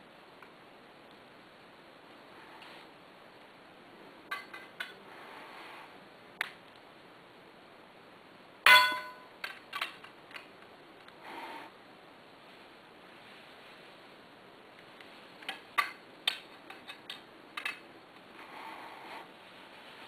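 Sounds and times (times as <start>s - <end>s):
loud ringing metal clank: 8.7s - 9.3s.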